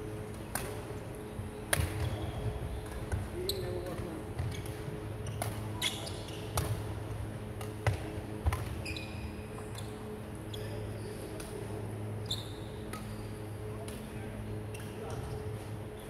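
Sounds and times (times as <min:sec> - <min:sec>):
steady low hum: 0:00.0 - 0:16.0
racket hitting shuttlecock: 0:00.5 - 0:00.8, 0:06.5 - 0:06.8.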